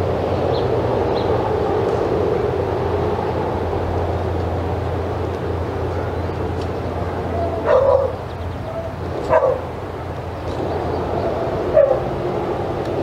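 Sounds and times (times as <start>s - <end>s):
steady low hum: 0.0s - 13.0s
dog barking: 7.4s - 9.7s, 11.7s - 12.1s.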